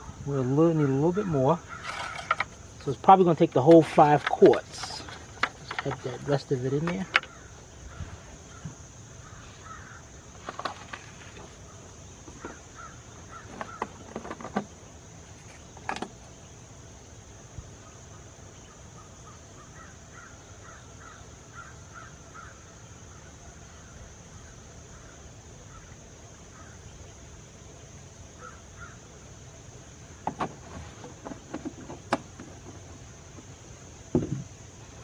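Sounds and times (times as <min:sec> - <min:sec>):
plastic jug clicks and knocks: 0:03.7 - 0:06.1, 0:30.2 - 0:33.5, 0:34.1 - 0:34.6.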